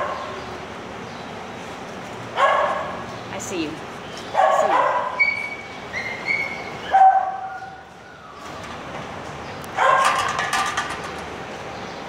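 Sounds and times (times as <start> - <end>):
dog barking: 2.4 - 3.0, 4.3 - 5.4, 6.9 - 7.7, 9.8 - 10.2
dog whining: 5.1 - 8.4.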